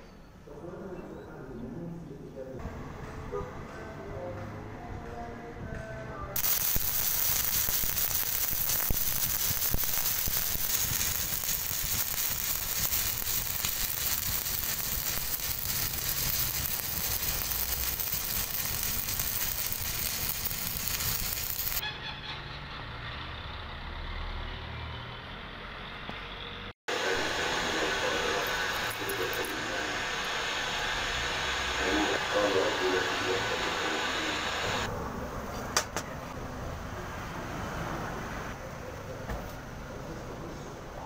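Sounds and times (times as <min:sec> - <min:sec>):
arc welding crackling sizzle: 0:06.4 - 0:21.8, 0:26.9 - 0:34.9.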